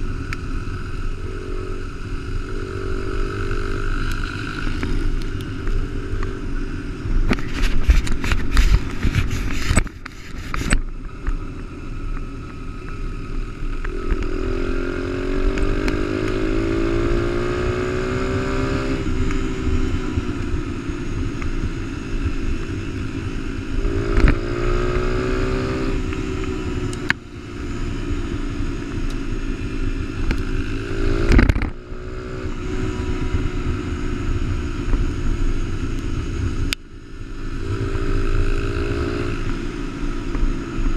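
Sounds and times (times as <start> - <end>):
gravel rattling and scraping: 1.8 - 14.4
dirt bike engine accelerating: 13.3 - 36.7.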